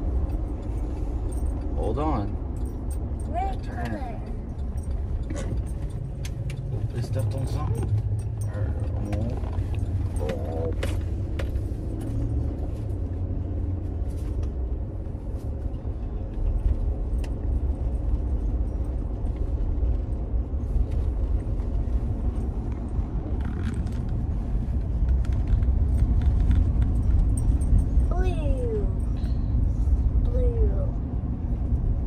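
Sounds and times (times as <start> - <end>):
road and engine rumble: 0.0 - 32.0.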